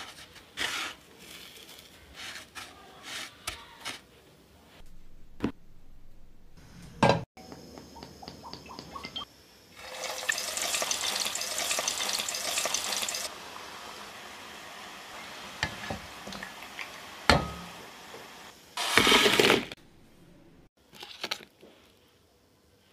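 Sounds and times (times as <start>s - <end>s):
food sizzling in hot oil: 9.8s - 19.8s.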